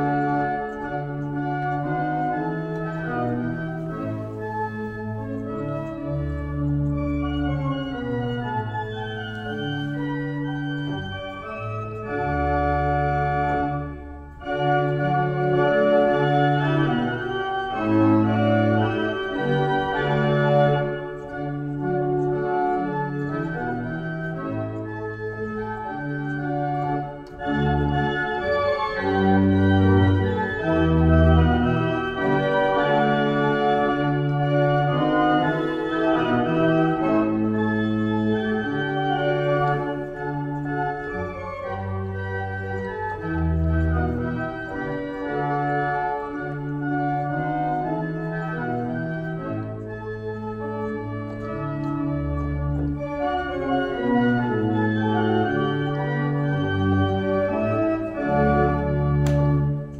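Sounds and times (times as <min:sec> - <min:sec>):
pipe organ chords: 0:00.0 - 0:59.9.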